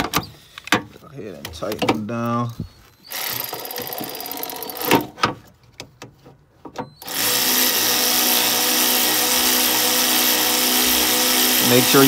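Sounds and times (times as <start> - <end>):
cordless ratchet motor running: 3.1 - 5.0, 7.0 - 12.0
ratchet clicks and knocks: 3.2 - 5.1.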